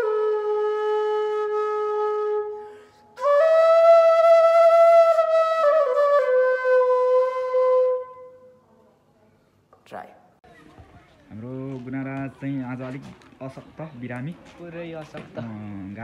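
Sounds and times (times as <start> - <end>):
bamboo flute slow melody: 0.0 - 8.6
breath: 2.6 - 3.2.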